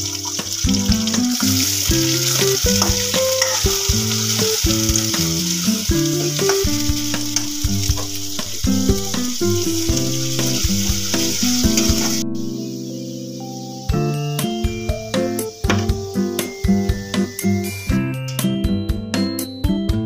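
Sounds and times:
onions sizzling in hot oil: 0.0 - 17.9
metal ladle scraping a pan: 1.8 - 12.5
tune of steady pitched notes: 6.6 - 12.6.

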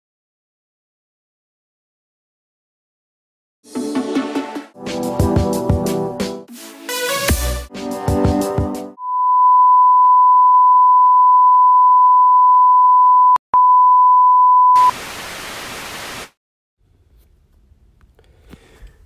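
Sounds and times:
high test-card beep: 9.0 - 14.9
tv static hiss: 14.8 - 16.4.

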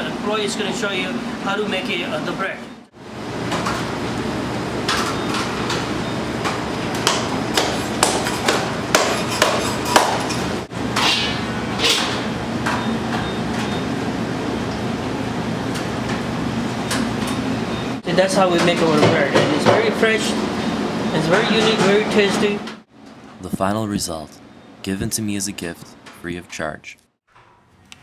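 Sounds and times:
steady low hum: 22.1 - 27.2.

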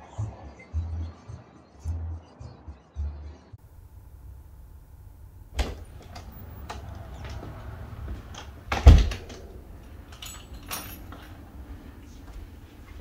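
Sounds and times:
door thump: 5.5 - 9.6
door clack: 5.5 - 11.5
door clicks and rattles: 5.5 - 11.9.

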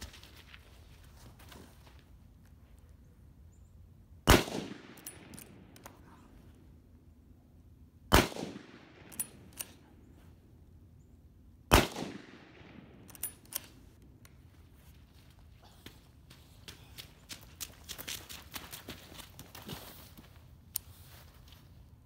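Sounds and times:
rifle shots with echo: 4.2 - 5.8, 8.1 - 9.9, 11.7 - 13.5
rifle bolt clacking: 13.0 - 13.8.

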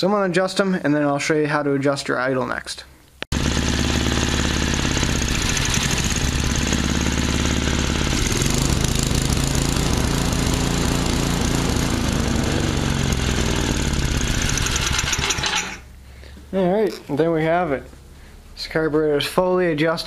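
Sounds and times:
snowblower engine running: 3.3 - 15.9.

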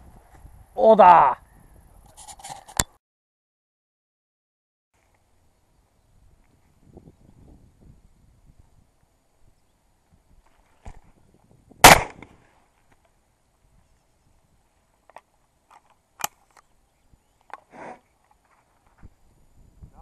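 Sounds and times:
shotgun shot: 11.8 - 12.4.

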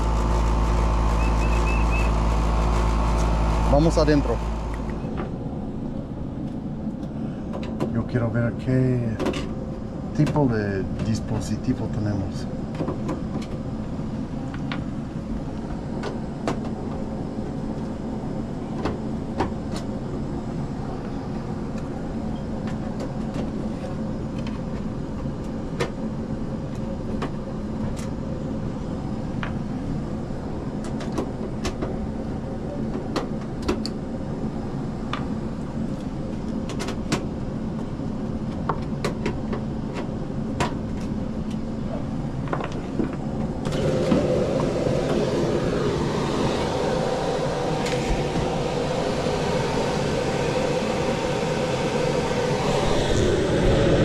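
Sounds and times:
air conditioner humming: 0.0 - 19.2, 39.7 - 54.0.

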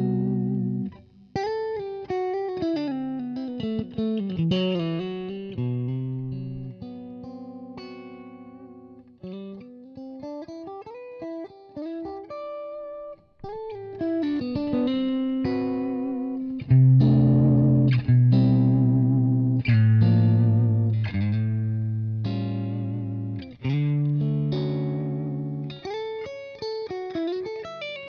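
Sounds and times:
electric guitar through amplifier: 13.8 - 26.0.

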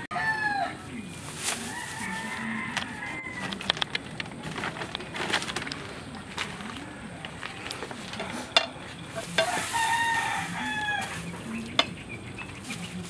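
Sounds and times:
rooster crowing: 0.0 - 1.0, 1.6 - 3.8, 9.2 - 11.7.

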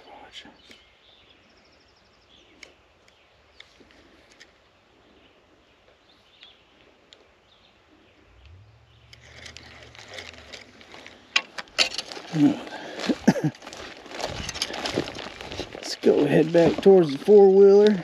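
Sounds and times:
low steady hum: 7.4 - 15.7
rustling: 8.2 - 18.0.

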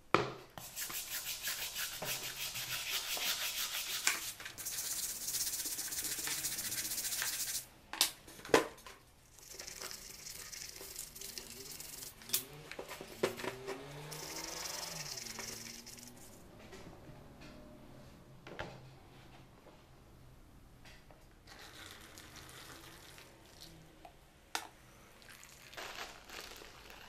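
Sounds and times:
brush scrubbing metal in water: 0.6 - 7.6, 14.1 - 16.2.

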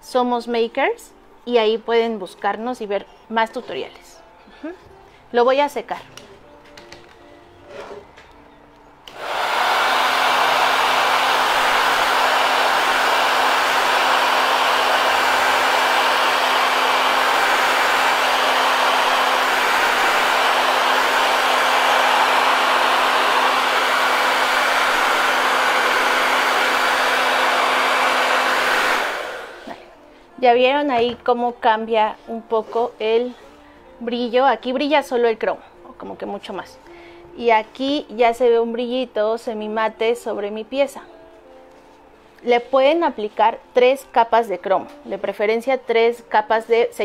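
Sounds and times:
hot-air dryer blowing: 9.1 - 29.9.

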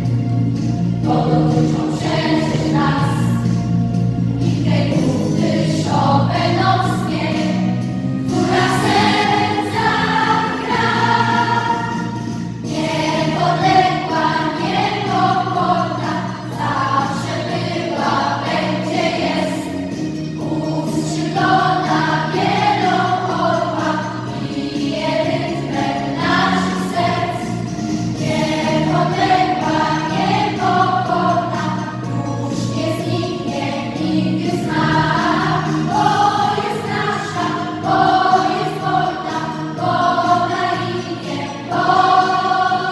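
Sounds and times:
children's choir singing: 0.0 - 3.6, 4.3 - 42.9.

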